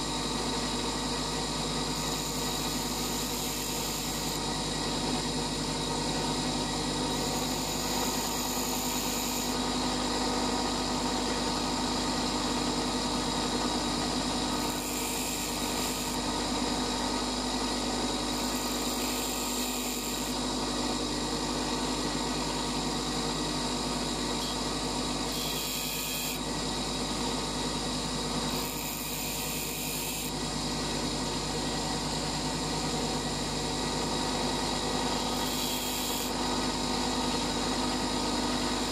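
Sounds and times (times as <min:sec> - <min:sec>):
bench grinder motor hum: 0:00.0 - 0:38.9
drill bit grinding rasp: 0:00.2 - 0:20.8, 0:24.4 - 0:30.6, 0:32.9 - 0:38.9.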